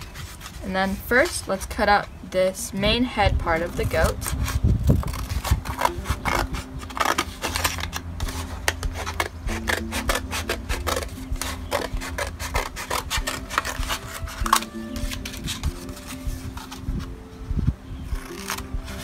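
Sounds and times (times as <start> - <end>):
scissors snipping paper: 3.6 - 16.8, 18.2 - 19.0
paper rustling: 3.6 - 17.2.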